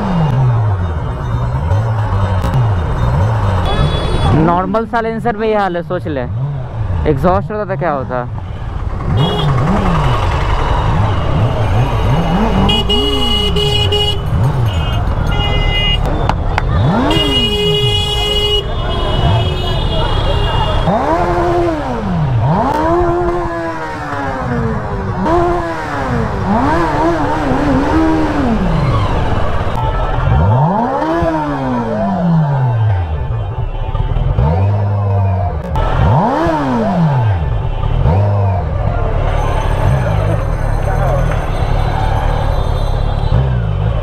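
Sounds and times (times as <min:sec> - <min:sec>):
motorcycle engine revving: 0:00.0 - 0:05.5, 0:06.1 - 0:33.3, 0:34.1 - 0:44.0
vehicle horn honking: 0:03.6 - 0:04.5, 0:08.5 - 0:09.8, 0:11.3 - 0:16.1, 0:16.8 - 0:21.1.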